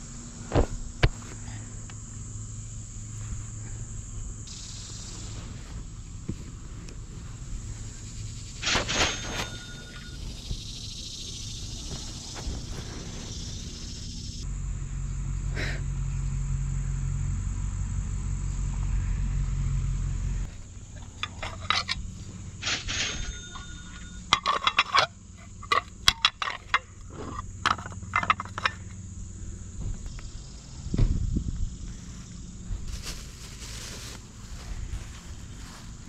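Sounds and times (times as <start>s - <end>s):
steady low rumble: 0.0s - 8.6s, 9.8s - 36.0s
ceramic plates clinking: 21.0s - 28.8s.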